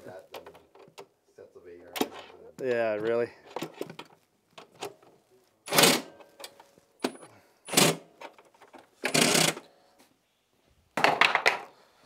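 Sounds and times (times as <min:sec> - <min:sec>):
impact driver bursts: 0:07.7 - 0:08.1, 0:09.0 - 0:09.7.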